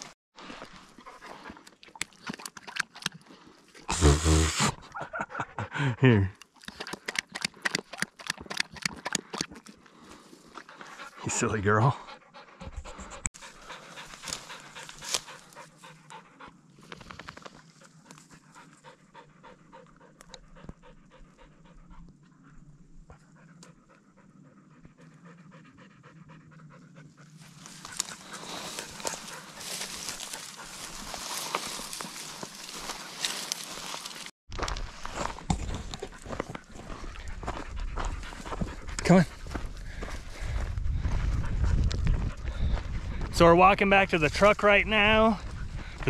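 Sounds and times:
dog panting: 0:06.6 - 0:34.0, 0:35.6 - 0:43.3, 0:45.4 - 0:46.0
footsteps through dry grass: 0:13.4 - 0:16.0, 0:27.3 - 0:46.0.

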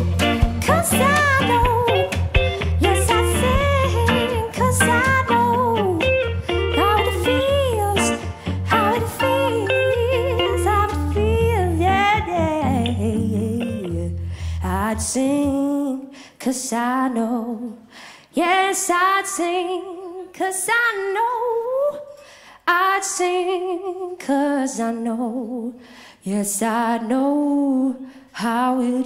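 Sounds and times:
live band playing: 0:00.0 - 0:12.6.

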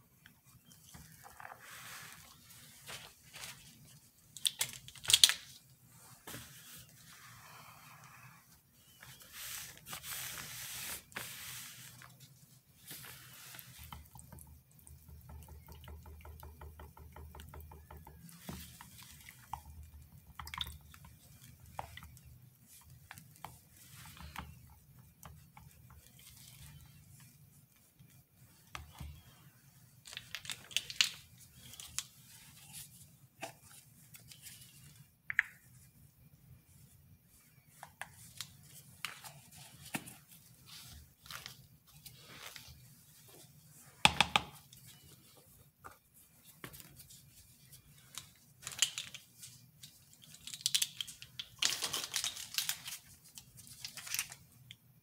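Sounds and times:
soap batter stirred and squishing: 0:00.0 - 0:55.0
cloth wiped across table: 0:05.9 - 0:12.1.

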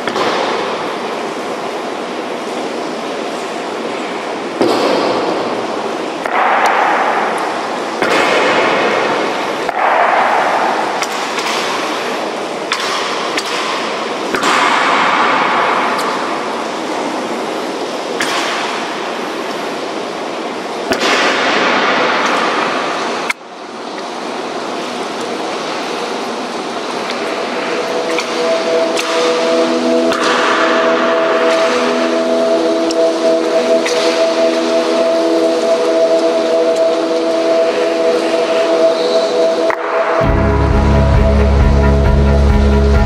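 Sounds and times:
rain hissing: 0:15.0 - 0:43.0.

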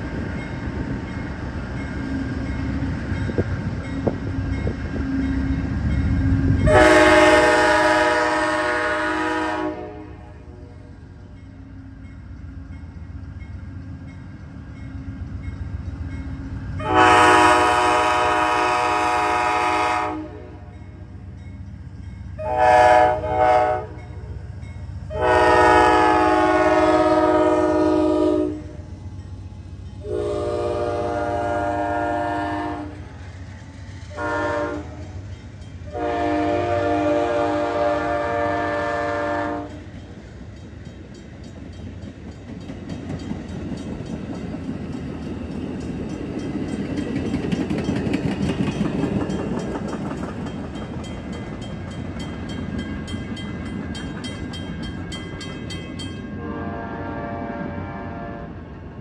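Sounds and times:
train rumbling past: 0:00.0 - 0:59.0
locomotive air horn blasts: 0:06.6 - 0:10.7, 0:16.8 - 0:20.7, 0:22.4 - 0:24.1, 0:25.1 - 0:28.8, 0:30.0 - 0:33.0, 0:34.1 - 0:35.1, 0:35.9 - 0:39.8, 0:56.3 - 0:58.6.

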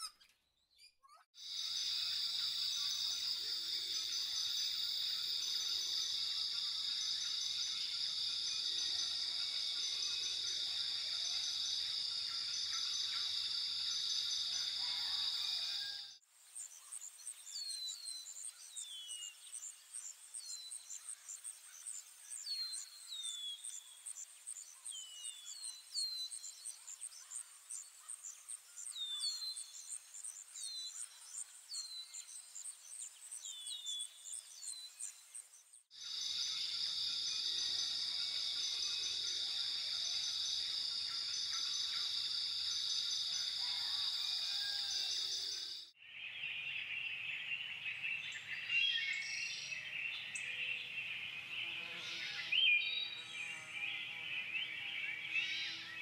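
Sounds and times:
steady insect drone: 0:01.4 - 0:15.9, 0:33.8 - 0:45.9
bird chirps: 0:15.8 - 0:56.0
high insect trill: 0:36.0 - 0:45.9.

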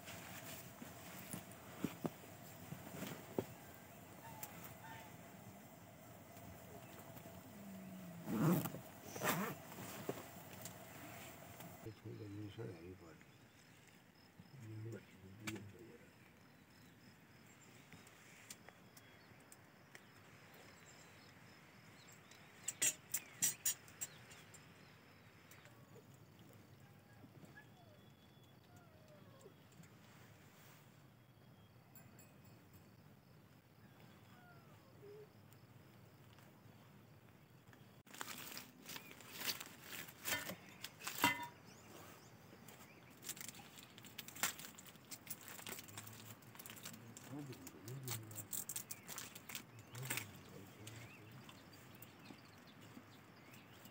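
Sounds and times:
plastic wrapper crinkling: 0:43.3 - 0:47.0.

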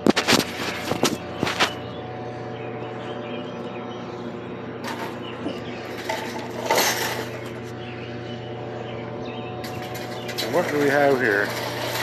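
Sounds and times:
steady mechanical hum: 0:00.0 - 0:12.0
wire cage trap rattling: 0:06.0 - 0:07.4.

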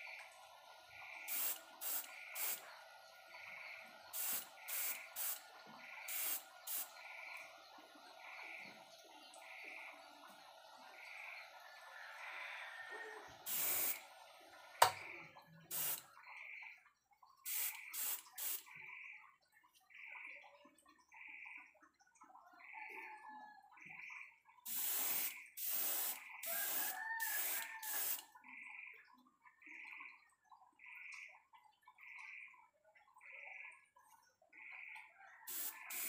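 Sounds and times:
airbrush spraying hiss: 0:01.3 - 0:02.6, 0:04.2 - 0:05.4, 0:06.1 - 0:06.9, 0:13.5 - 0:14.0, 0:15.7 - 0:16.0, 0:17.5 - 0:18.6, 0:24.7 - 0:28.2, 0:35.5 - 0:36.0
compressor running: 0:01.3 - 0:02.6, 0:04.2 - 0:05.4, 0:06.1 - 0:06.8, 0:13.5 - 0:14.0, 0:15.7 - 0:16.0, 0:17.5 - 0:18.6, 0:24.7 - 0:28.2, 0:35.5 - 0:36.0.

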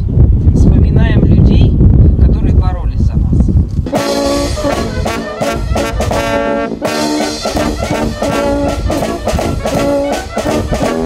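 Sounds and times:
brass band music: 0:03.9 - 0:11.0.

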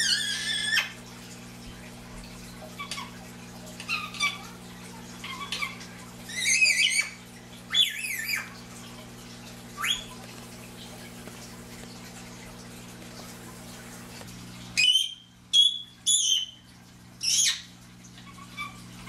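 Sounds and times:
parakeet chattering: 0:03.8 - 0:04.6, 0:05.2 - 0:08.5, 0:09.8 - 0:10.2, 0:17.2 - 0:17.7
parakeet rising whistle: 0:06.3 - 0:08.5, 0:09.8 - 0:10.1, 0:14.8 - 0:16.5.

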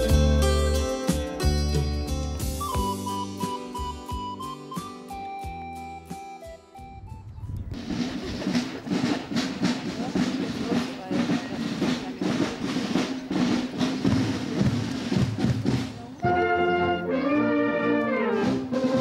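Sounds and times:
marching snare and bass drum: 0:00.0 - 0:04.4, 0:07.7 - 0:17.0, 0:17.9 - 0:19.0
brass held chord: 0:16.2 - 0:18.9.

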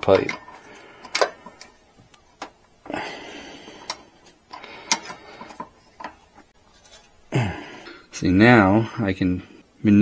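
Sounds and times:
sharp clicks on metal parts: 0:00.0 - 0:01.7
scraping and rustling: 0:03.8 - 0:07.2.

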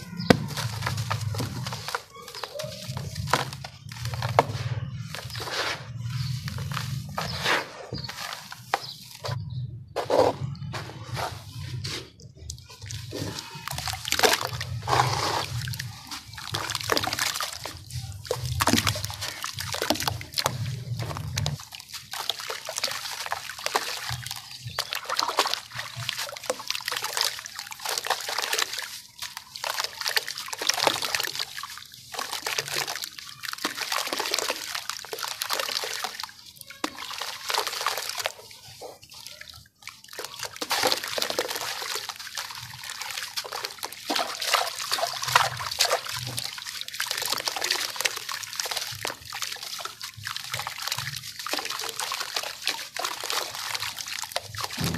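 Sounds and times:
gritty crackle of crumbling sand: 0:00.0 - 0:09.6, 0:10.8 - 0:44.0
hands churning in water: 0:00.0 - 0:54.9.

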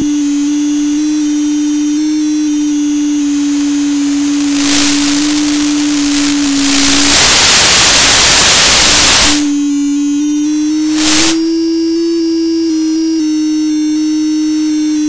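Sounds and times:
steady electronic tone: 0:00.0 - 0:15.0
static hiss: 0:02.9 - 0:09.8, 0:10.7 - 0:11.6.

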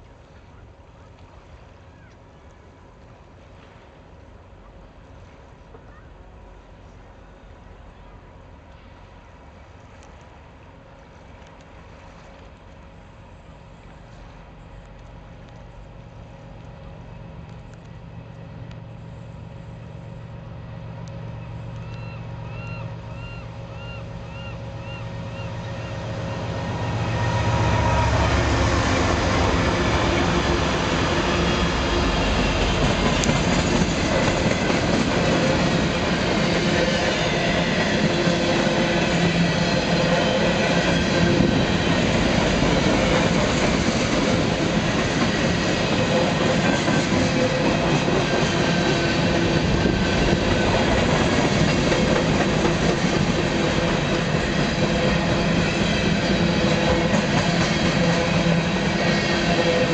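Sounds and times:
diesel locomotives passing: 0:00.0 - 0:59.9
wheel-on-rail noise: 0:08.6 - 0:59.9.

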